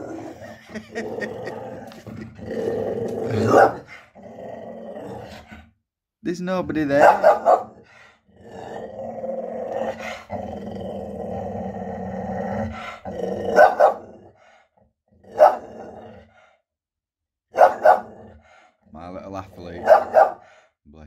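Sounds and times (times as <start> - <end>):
dog growling: 0.0 - 5.7, 6.8 - 16.6, 17.6 - 18.8
dog barking: 3.4 - 3.9, 6.9 - 7.8, 13.5 - 14.1, 15.4 - 15.7, 17.5 - 18.1, 19.8 - 20.5.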